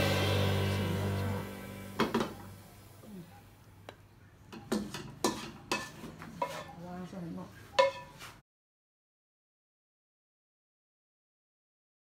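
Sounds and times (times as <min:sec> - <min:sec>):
dishes and utensils clinking: 0:04.5 - 0:06.9, 0:07.7 - 0:08.4.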